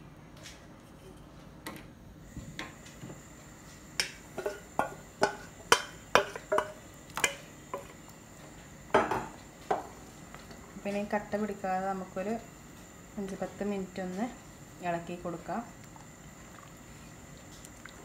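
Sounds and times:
bubbles bursting in boiling milk: 0:15.6 - 0:18.0.

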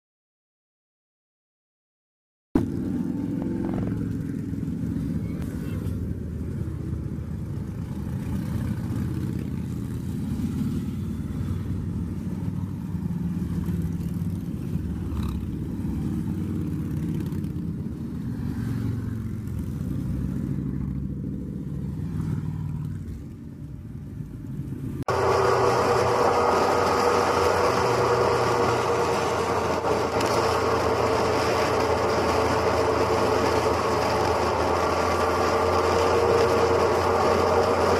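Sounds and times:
motorcycles rumbling past: 0:02.6 - 0:23.4
wind while riding motorcycle: 0:02.6 - 0:25.0.

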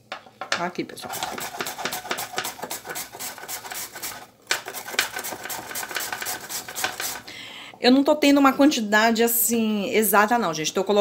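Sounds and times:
carrot rasping on grater: 0:01.1 - 0:07.3.

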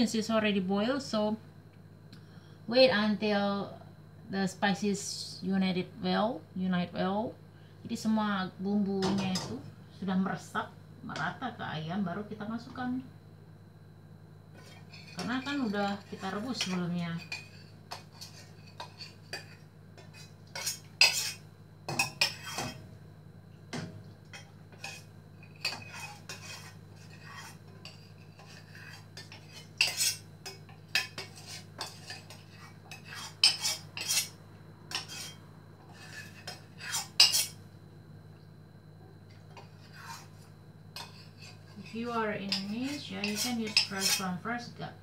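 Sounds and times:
steady low hum: 0:00.0 - 0:45.0
utensil scraping metal pot: 0:14.6 - 0:21.4, 0:22.0 - 0:22.8, 0:24.3 - 0:37.6, 0:39.6 - 0:44.4.

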